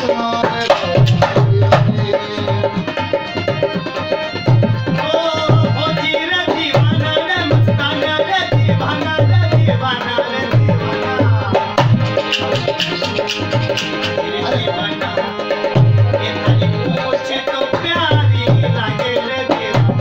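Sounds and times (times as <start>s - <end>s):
bending melody line: 0.0s - 20.0s
hand drum beating: 0.0s - 20.0s.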